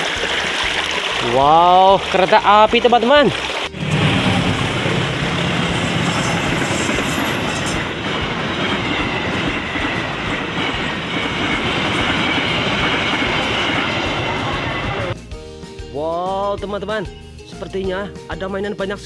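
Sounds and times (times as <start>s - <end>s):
train wheels rushing on rails: 3.7s - 15.2s.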